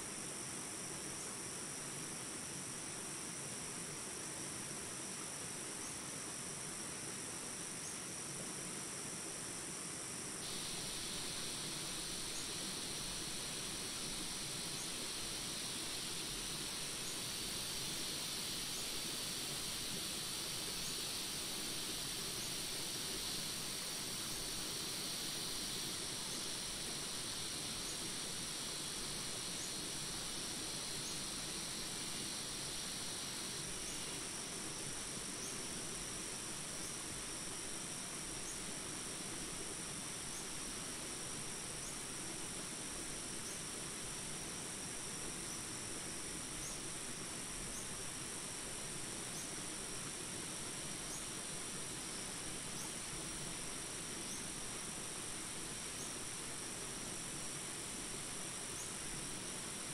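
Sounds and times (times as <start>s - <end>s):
high insect drone: 0.0s - 59.9s
rain hiss: 0.0s - 59.9s
faint chirp: 10.5s - 34.3s.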